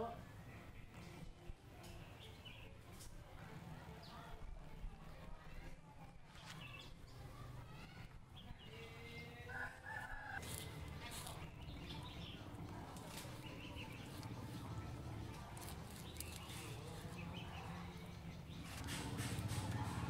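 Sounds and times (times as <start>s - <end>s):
rooster crowing: 9.5s - 10.6s.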